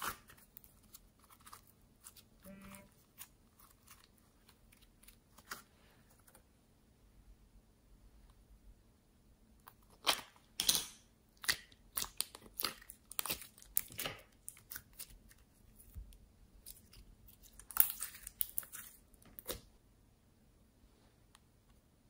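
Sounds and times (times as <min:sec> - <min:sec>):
slime crackling and popping: 0:09.6 - 0:15.9, 0:16.6 - 0:19.7.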